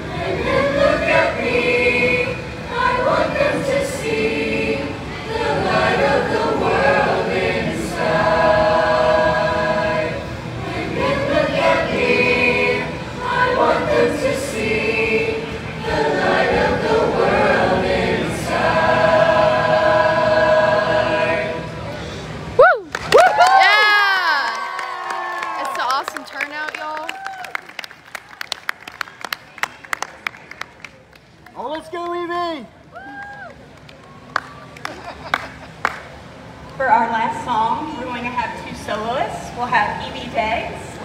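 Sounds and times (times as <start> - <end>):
mixed choir singing: 0.0 - 22.0.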